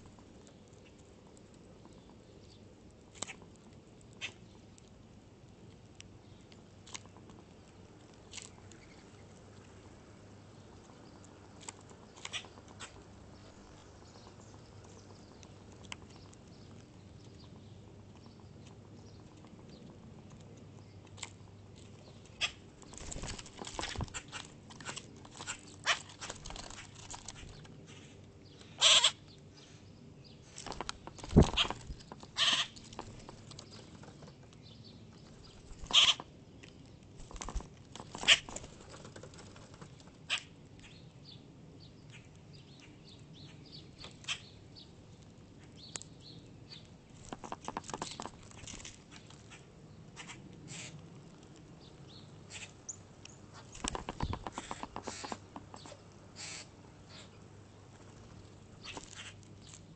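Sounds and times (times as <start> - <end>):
wing flutters: 22.4 - 27.7, 30.5 - 34.4, 35.3 - 36.2, 37.2 - 40.4, 53.5 - 56.7.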